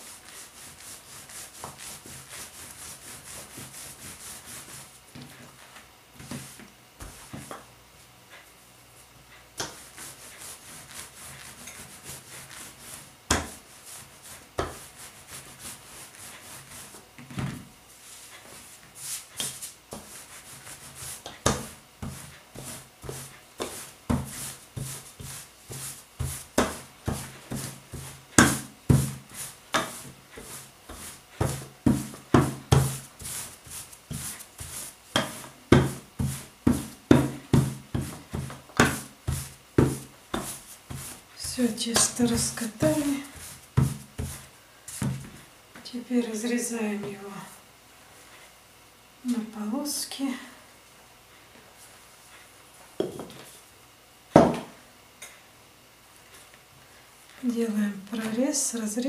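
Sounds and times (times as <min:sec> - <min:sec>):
rolling pin rolling over dough: 0:00.0 - 0:07.7, 0:08.3 - 0:45.5.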